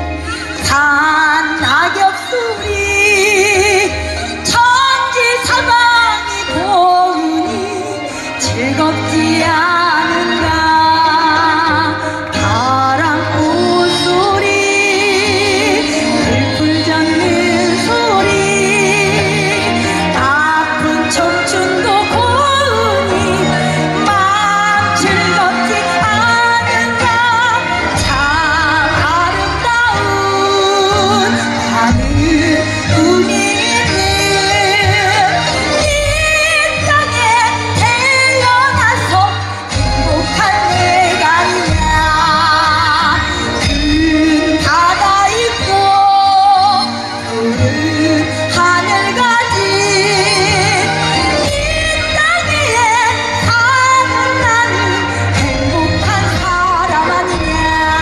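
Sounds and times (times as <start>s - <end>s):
amplified backing music: 0.0s - 58.0s
instrumental accompaniment with bass: 0.0s - 58.0s
woman singing with vibrato: 0.0s - 58.0s.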